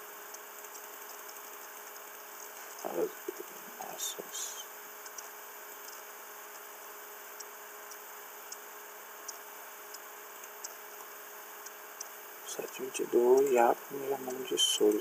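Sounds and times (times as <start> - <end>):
open microphone hiss: 0.0 - 15.0
computer mouse clicks: 0.3 - 2.8, 5.0 - 6.7, 9.2 - 12.2.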